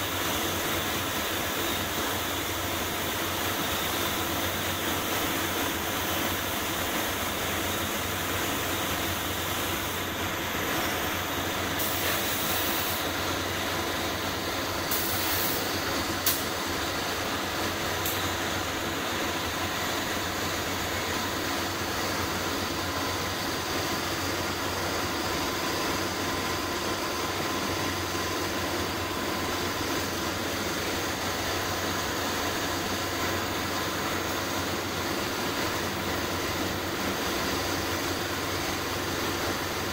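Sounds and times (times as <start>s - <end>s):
paint spray gun air hiss: 7.7s - 16.7s.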